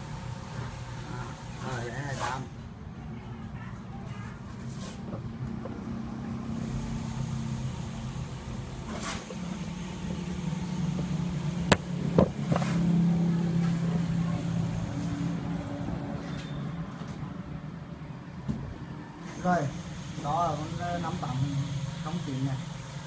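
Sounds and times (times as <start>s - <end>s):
low motor-like hum: 5.0s - 16.2s
sharp clicks and knocks: 10.9s - 12.8s.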